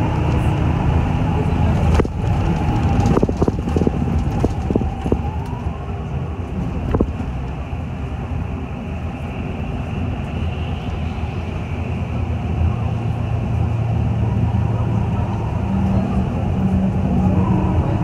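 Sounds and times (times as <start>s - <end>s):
bus engine and road rumble: 0.0s - 18.0s
rising whine: 0.0s - 18.0s.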